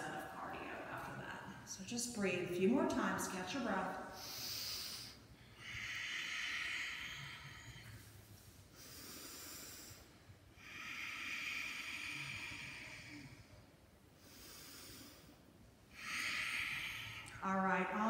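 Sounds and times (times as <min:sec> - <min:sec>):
woman breathing deeply: 0:04.0 - 0:17.4.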